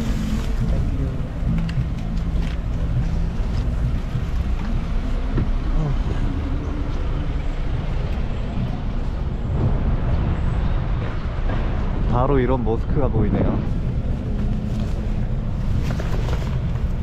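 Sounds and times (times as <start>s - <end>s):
city traffic: 0.0s - 17.0s.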